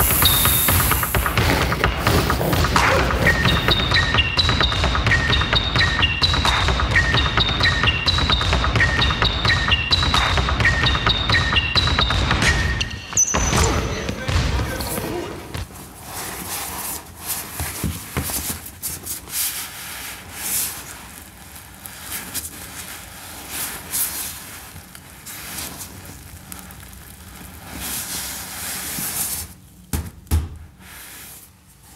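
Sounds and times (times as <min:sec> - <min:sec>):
leather rustling and scuffing: 0:14.8 - 0:29.7.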